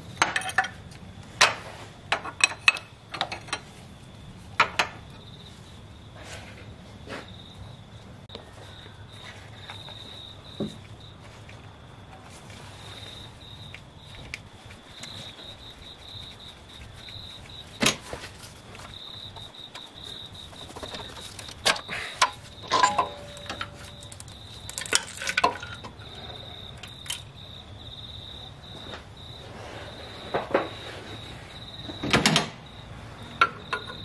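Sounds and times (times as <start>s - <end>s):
metallic clinks and clicks: 22.2s - 25.9s.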